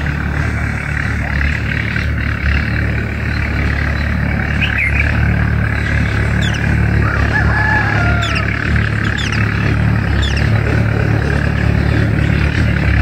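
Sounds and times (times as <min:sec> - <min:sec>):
long drawn-out call: 0:00.0 - 0:13.0
low outdoor rumble: 0:00.0 - 0:13.0
high bird chirps: 0:03.3 - 0:10.8.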